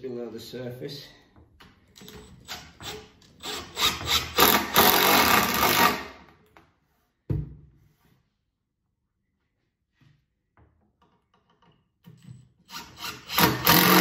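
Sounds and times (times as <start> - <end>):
impact driver hammering screw: 2.1 - 6.1, 12.7 - 14.0.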